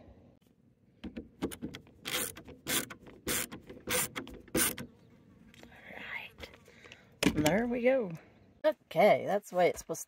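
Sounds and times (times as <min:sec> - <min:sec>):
power screwdriver driving screw: 0:02.0 - 0:04.8.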